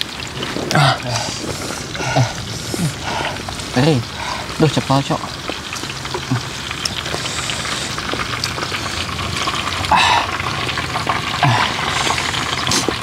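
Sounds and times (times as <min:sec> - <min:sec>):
faint crackles: 0:00.0 - 0:13.0
food sizzling in a pan: 0:00.0 - 0:13.0.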